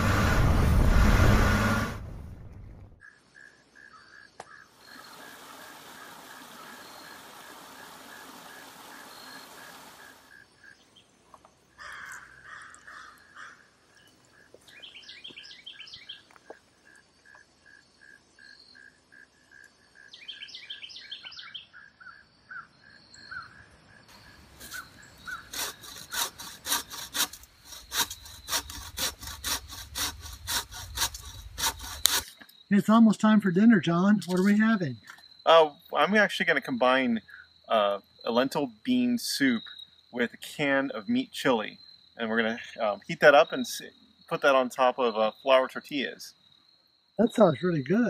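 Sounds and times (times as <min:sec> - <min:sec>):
bird chirping: 0:02.4 - 0:25.9
water rushing over rocks: 0:05.0 - 0:10.2
hand saw cutting branch: 0:24.6 - 0:32.4.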